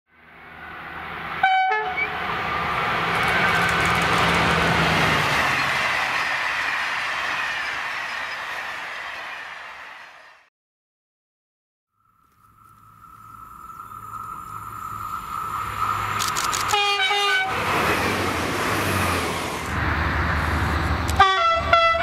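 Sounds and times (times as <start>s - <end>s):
train passing: 0.1s - 10.5s, 12.0s - 22.0s
train horn blast: 1.4s - 2.2s, 16.7s - 17.7s, 21.1s - 22.0s.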